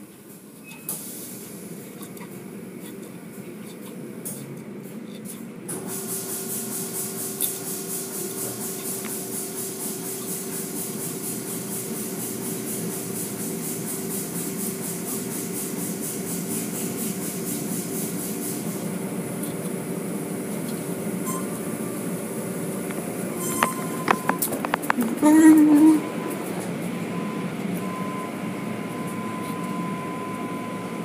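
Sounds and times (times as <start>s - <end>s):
car wash machinery hum: 0.0s - 31.0s
water spraying with a hiss: 5.7s - 18.8s.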